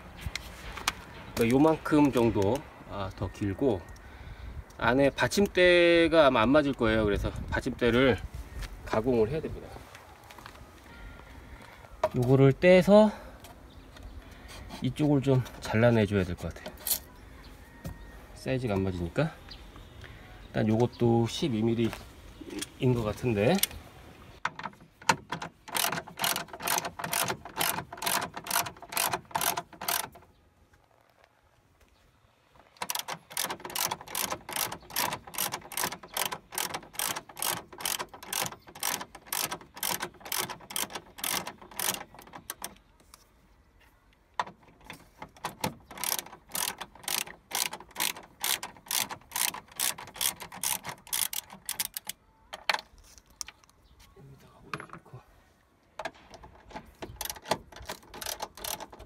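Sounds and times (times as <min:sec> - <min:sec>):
ratchet wrench clicking: 0:25.6 - 0:30.2, 0:32.8 - 0:42.8, 0:45.4 - 0:52.2, 0:57.2 - 0:59.0.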